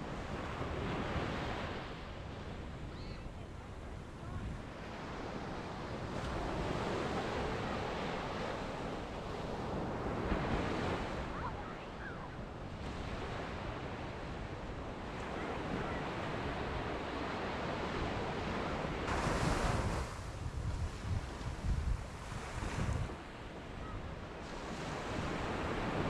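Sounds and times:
small waves breaking on sand: 4.0 - 26.0
wind buffeting microphone: 17.7 - 26.0.

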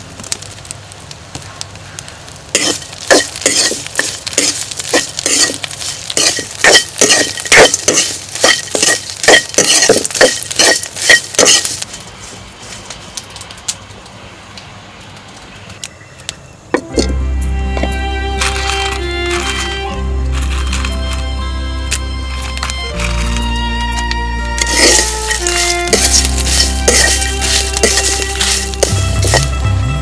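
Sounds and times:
spatula scraping a wok: 2.5 - 12.4, 24.6 - 29.6.

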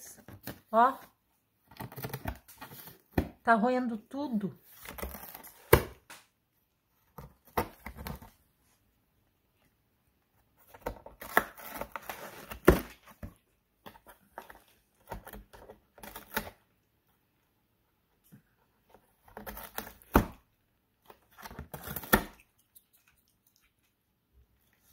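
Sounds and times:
cat gnawing cardboard: 1.6 - 3.2, 10.4 - 17.1, 18.2 - 24.9.

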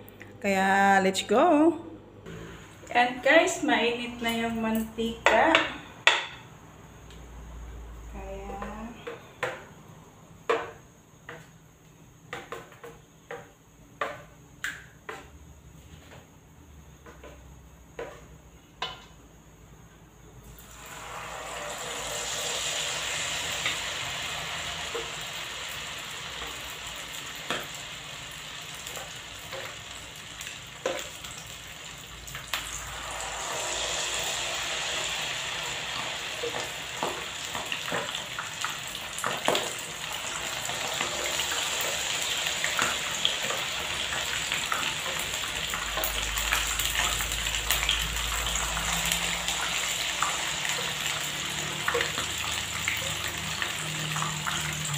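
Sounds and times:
squid rings deep-frying in oil: 20.5 - 54.9.

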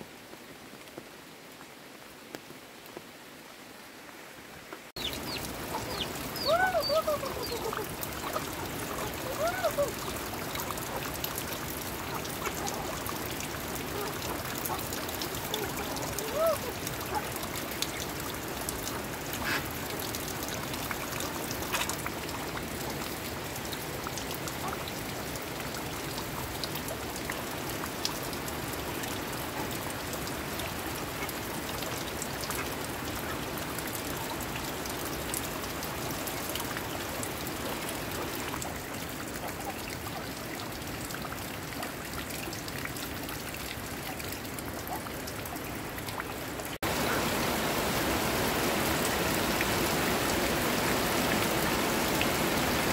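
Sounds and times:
heavy rain falling: 0.0 - 52.9
water pouring off roof eaves: 4.9 - 52.9
chicken calls: 5.0 - 17.4.

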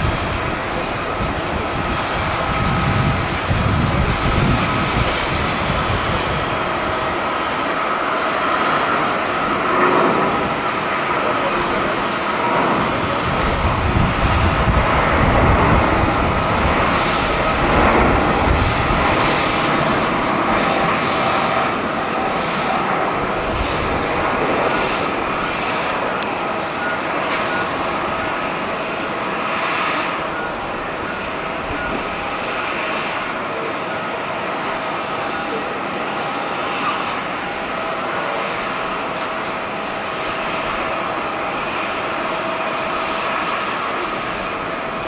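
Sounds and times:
jet engine roar at takeoff: 0.0 - 45.0.

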